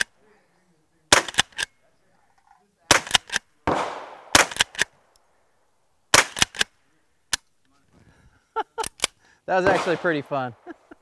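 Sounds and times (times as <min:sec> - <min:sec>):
gunshots cracking: 0:01.1 - 0:01.6, 0:02.9 - 0:05.0, 0:06.1 - 0:06.7, 0:09.6 - 0:10.6.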